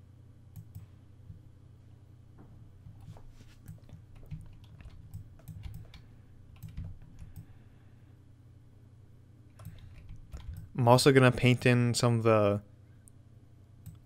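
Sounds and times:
faint low hum: 0.0s - 14.0s
computer mouse and keyboard clicks: 3.0s - 7.5s, 9.5s - 10.7s.

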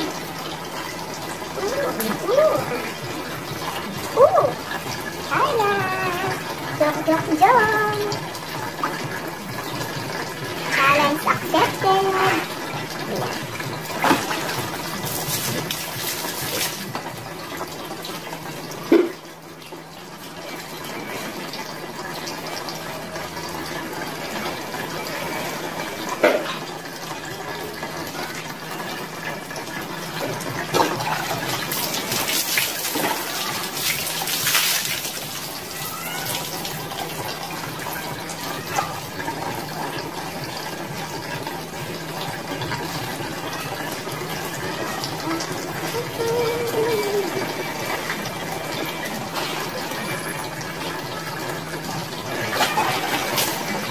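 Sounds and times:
water splashes: 0.0s - 19.2s, 19.8s - 53.9s
water running: 0.0s - 53.9s
water poured over body: 31.0s - 37.2s.

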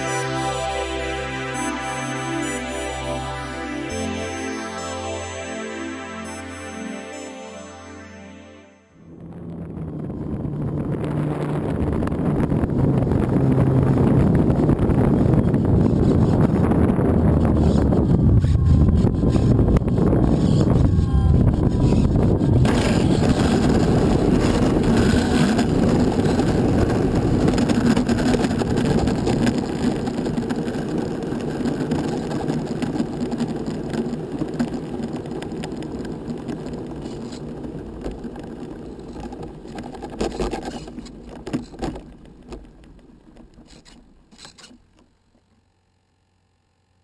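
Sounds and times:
wheels rolling over rough asphalt: 9.2s - 45.6s.

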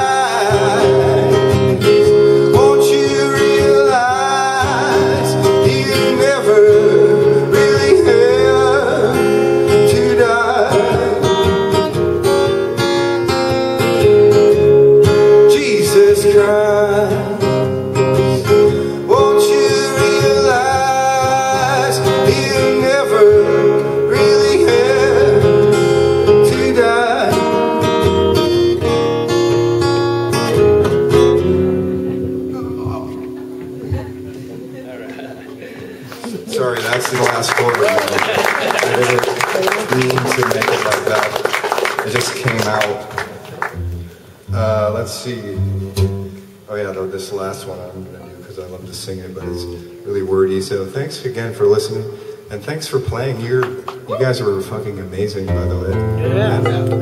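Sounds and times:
man singing: 0.0s - 11.8s, 15.2s - 28.0s
acoustic guitar strumming: 0.0s - 37.8s, 38.5s - 57.0s.

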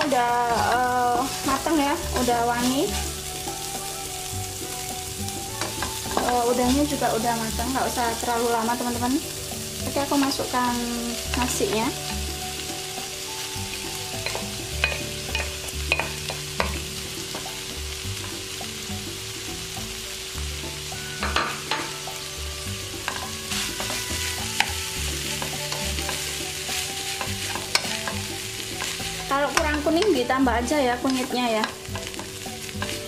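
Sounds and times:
food sizzling in a wok: 0.0s - 33.0s
spatula scraping and knocking pan: 23.0s - 30.3s, 31.0s - 33.0s.

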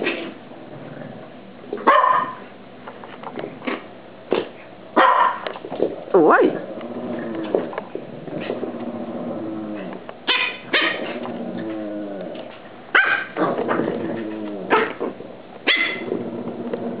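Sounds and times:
dog growling: 0.0s - 1.4s, 6.2s - 12.6s, 13.2s - 17.0s
dog barks and yips: 1.9s - 2.4s, 5.0s - 5.4s, 10.3s - 11.1s, 12.9s - 13.4s, 15.6s - 16.1s.

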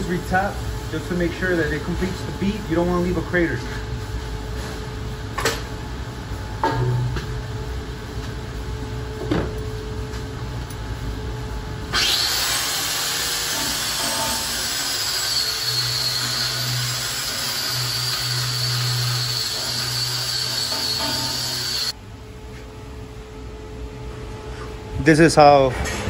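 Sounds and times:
angle grinder on steel: 11.9s - 21.9s.

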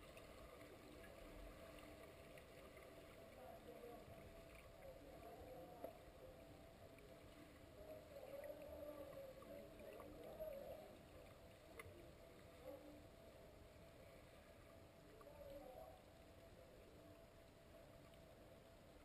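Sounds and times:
low wavering hum underwater: 0.0s - 19.0s
faint clicks: 11.2s - 12.1s.

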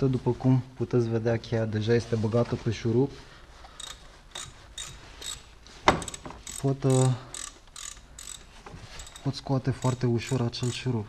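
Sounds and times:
ratchet wrench clicking: 3.8s - 10.9s.

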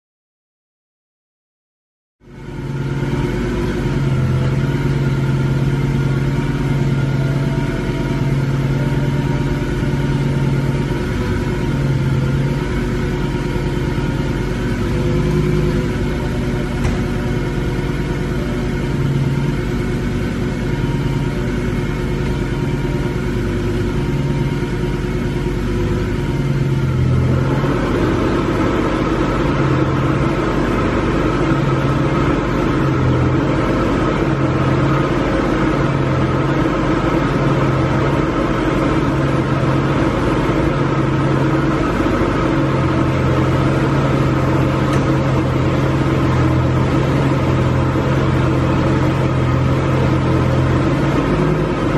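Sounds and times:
car engine idling: 2.2s - 51.9s.

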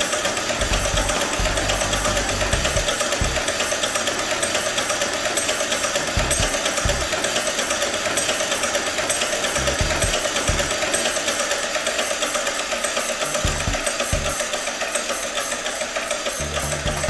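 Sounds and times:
electric motor mechanical clatter: 0.0s - 17.0s.

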